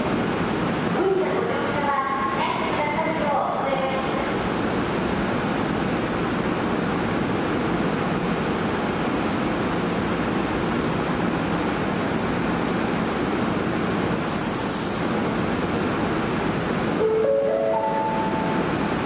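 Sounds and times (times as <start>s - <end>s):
train rolling through tunnel: 0.0s - 19.0s
high hiss: 14.1s - 15.2s.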